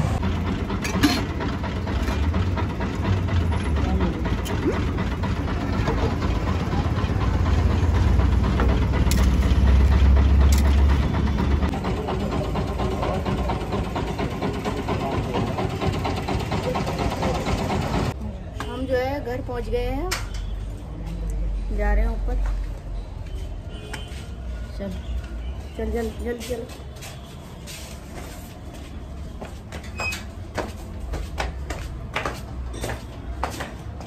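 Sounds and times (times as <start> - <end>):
engine low hum: 0.0 - 18.2
street noise: 0.0 - 34.0.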